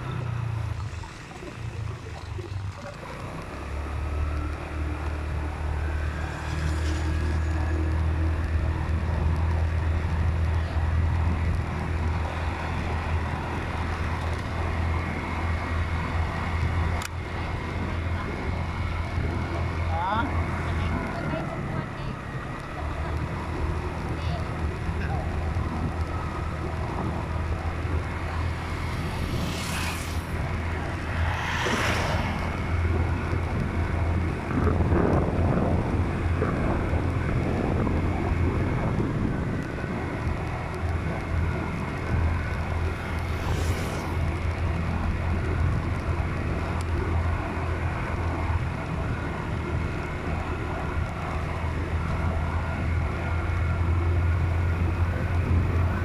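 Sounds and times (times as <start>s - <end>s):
road noise: 0.0s - 56.0s
vehicle engine drone: 0.0s - 56.0s
passing vehicle whooshes: 2.8s - 23.4s, 25.5s - 49.0s
wind on microphone: 24.8s - 56.0s.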